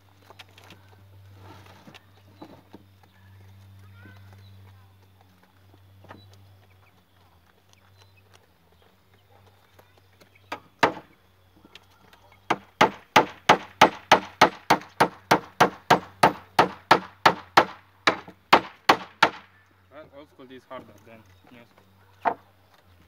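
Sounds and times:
hammer driving nail into wood: 10.8 - 11.0, 12.5 - 19.4.

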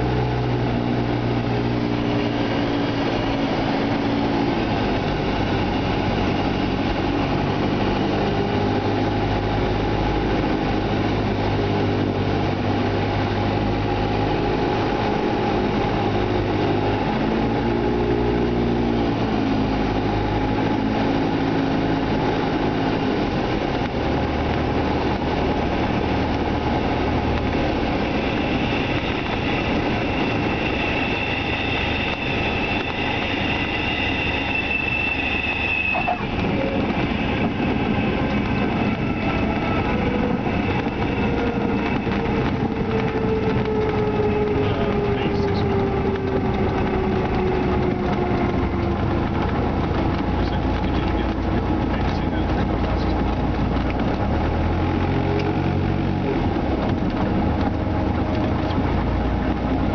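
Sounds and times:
light aircraft engine and propeller: 0.0 - 59.9
high steady tone: 27.7 - 43.5.

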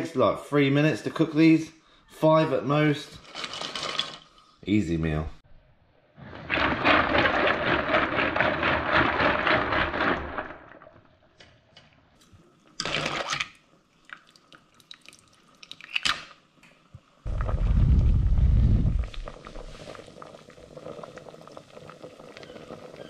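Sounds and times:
pot boiling and bubbling: 6.2 - 11.0, 12.6 - 16.0, 16.7 - 23.0
low rumble: 17.3 - 19.9.

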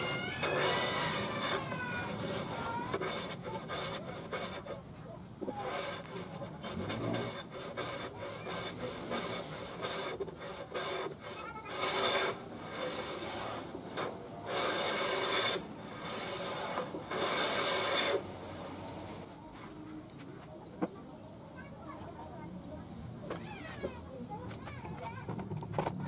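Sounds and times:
hand plane shaving wood: 0.0 - 19.0.

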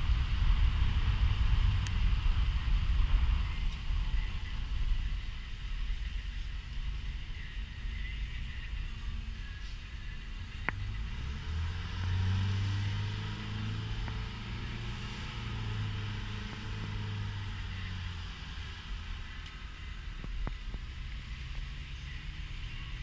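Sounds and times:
car engine and road drone: 0.0 - 23.0
faint clicks: 19.4 - 19.6.

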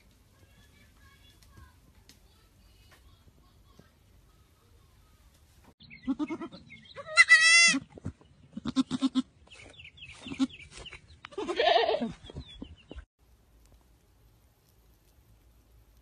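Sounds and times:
baby goat bleating: 6.0 - 7.8, 8.6 - 9.3, 11.3 - 12.1.

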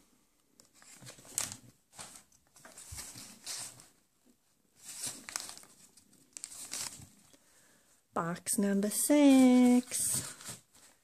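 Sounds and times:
paper envelopes rustling: 0.6 - 4.0, 4.8 - 7.3, 9.0 - 11.0.

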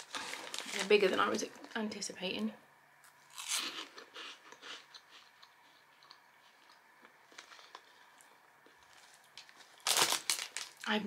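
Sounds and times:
chewing crunchy snack: 3.3 - 10.9.

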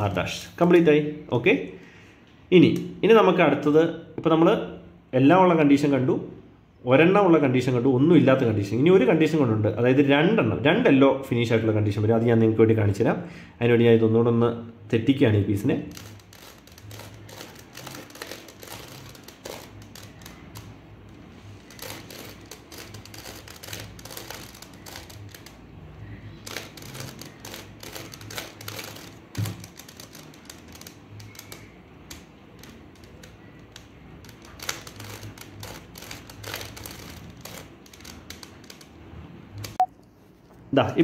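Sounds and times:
puzzle cube clicking: 15.9 - 25.7, 26.4 - 39.0.

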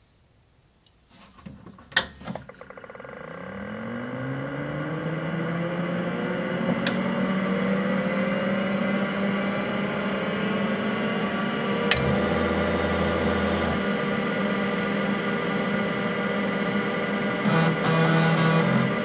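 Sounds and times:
fan and hard drive whirring: 2.0 - 19.0
power switch clunk: 6.7 - 7.2, 11.9 - 12.3.

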